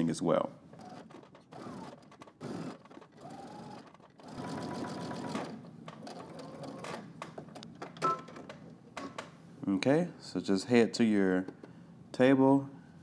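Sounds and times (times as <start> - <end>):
sewing machine stitching denim: 0.8 - 7.0.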